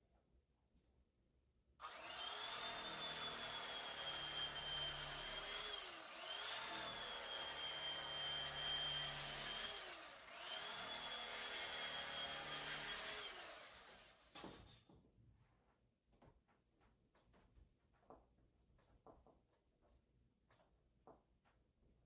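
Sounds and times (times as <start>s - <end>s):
electric knife motor whine: 1.8s - 14.2s.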